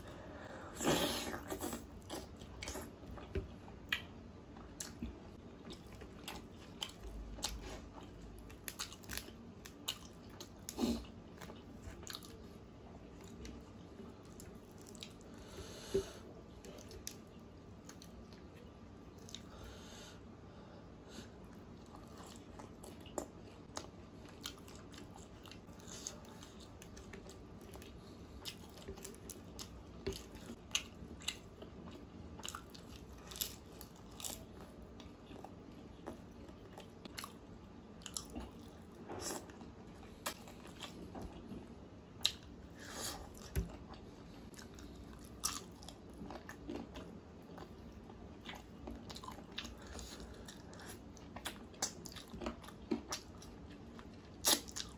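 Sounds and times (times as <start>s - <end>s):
close chewing with wet smacks: 43.4s - 54.9s.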